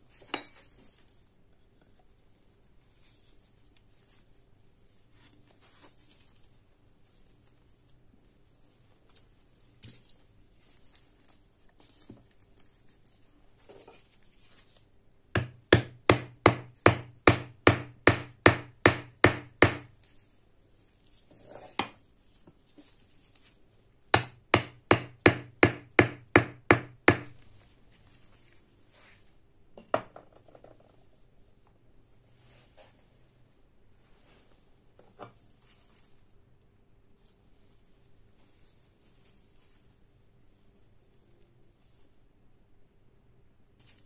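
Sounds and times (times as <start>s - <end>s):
hammer striking a nail: 15.4s - 19.9s, 24.2s - 27.4s.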